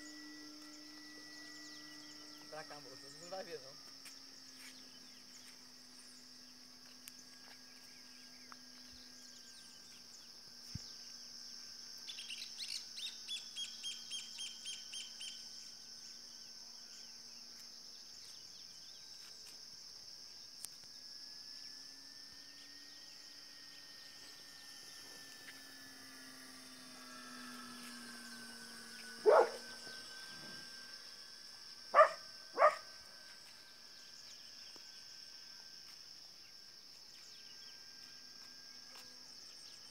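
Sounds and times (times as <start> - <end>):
distant model airplane drone: 0.0 - 39.9
high insect drone: 0.0 - 39.9
bird calling: 29.2 - 30.6.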